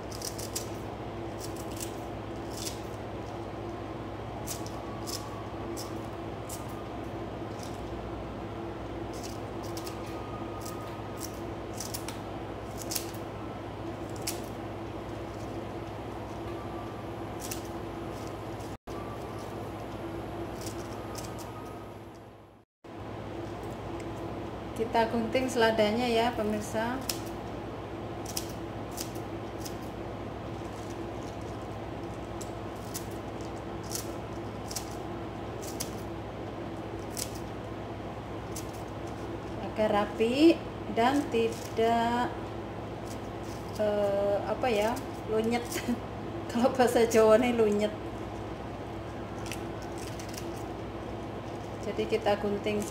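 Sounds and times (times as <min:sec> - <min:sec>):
scissors snipping lettuce: 0:00.0 - 0:03.0, 0:04.4 - 0:06.8, 0:09.1 - 0:13.2, 0:14.1 - 0:14.6, 0:17.4 - 0:18.8, 0:20.5 - 0:21.5, 0:28.2 - 0:29.9, 0:30.6 - 0:35.0, 0:35.6 - 0:36.1, 0:37.0 - 0:37.5, 0:49.3 - 0:50.7
steady low hum: 0:00.0 - 0:52.9.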